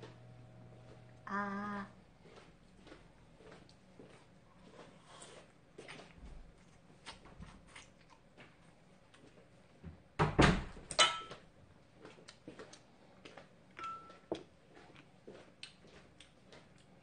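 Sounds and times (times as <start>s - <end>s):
ceramic dishes clinking: 11.0s - 11.4s.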